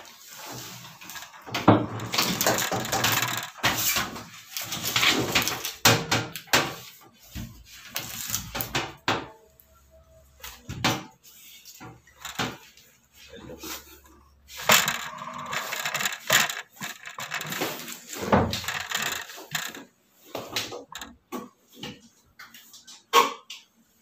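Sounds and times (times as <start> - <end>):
cord and hoses rubbing metal cabinet: 0.0 - 5.8, 11.3 - 21.2
sharp clicks and knocks: 1.0 - 4.3, 14.6 - 22.9.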